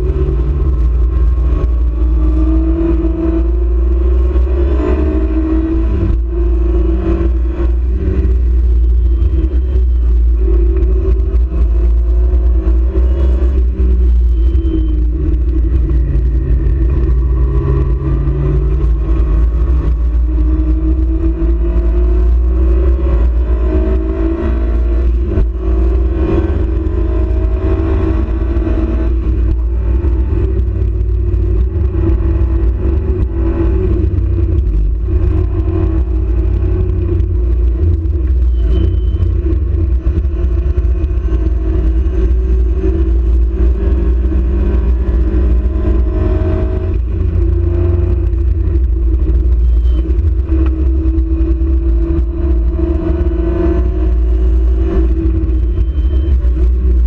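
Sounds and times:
heavy low rumble: 0.0 - 57.0
race car engine revving: 0.0 - 57.0.

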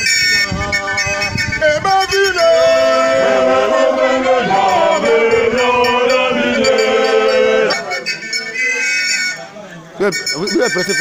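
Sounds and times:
choir singing in harmony: 0.4 - 8.2.

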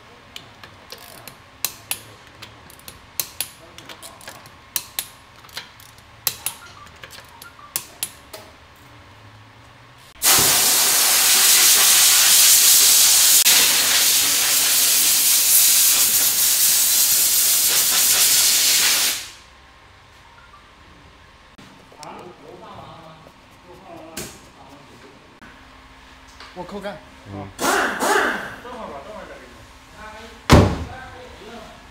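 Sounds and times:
wrench clicking on wheel bolts: 0.4 - 6.6
loud steady hiss: 10.2 - 19.5.

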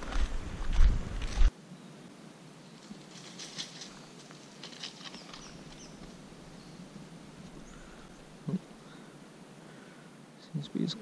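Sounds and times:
footsteps on dirt and leaves: 0.0 - 1.5, 2.8 - 6.4.

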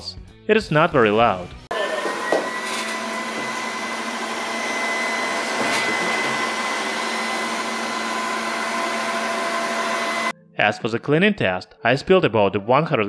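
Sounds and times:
robot vacuum fan whirring: 1.7 - 10.3.

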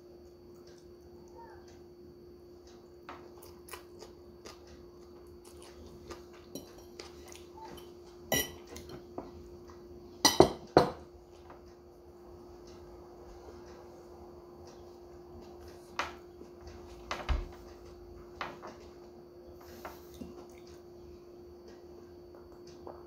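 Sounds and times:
metal fork clinking on plate: 7.8 - 9.0.

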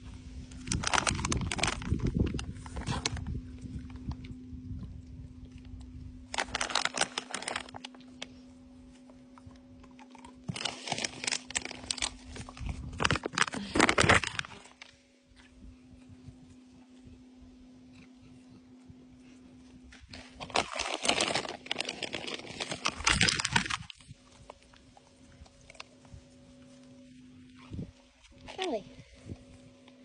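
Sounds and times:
dogs crunching treats: 0.5 - 15.5, 19.2 - 30.0.

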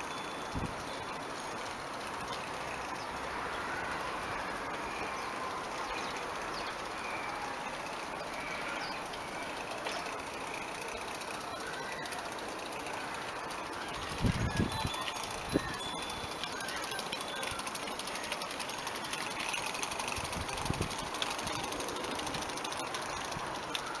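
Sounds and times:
birds chirping faintly: 0.0 - 24.0.

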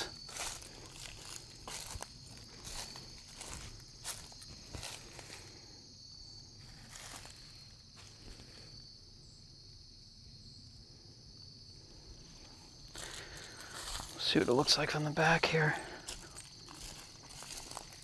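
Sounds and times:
footsteps on dry leaves: 0.0 - 5.8, 6.6 - 8.8, 12.8 - 18.0
insects chorus: 0.0 - 18.0.

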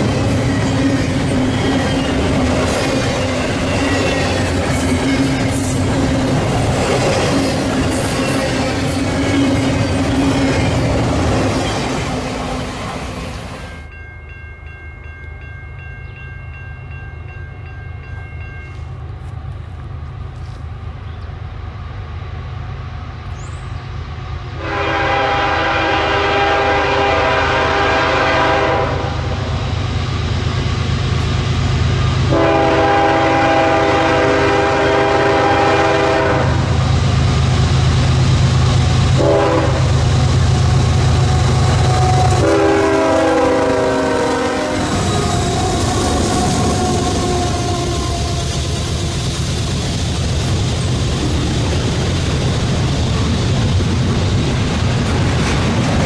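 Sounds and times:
diesel locomotive rumble: 0.0 - 13.9, 18.1 - 56.0
train air horn blasts: 24.6 - 29.4, 32.2 - 36.8, 39.2 - 40.0, 41.3 - 49.1.

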